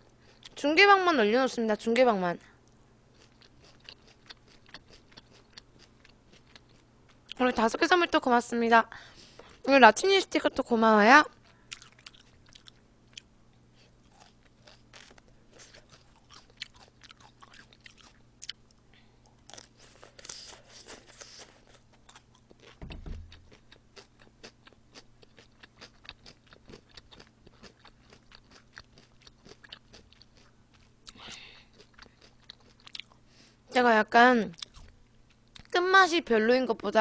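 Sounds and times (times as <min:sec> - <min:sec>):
person chewing crunchy salad: 0:00.2 - 0:00.6, 0:03.1 - 0:07.4, 0:11.3 - 0:33.3
low thump: 0:22.8 - 0:23.5.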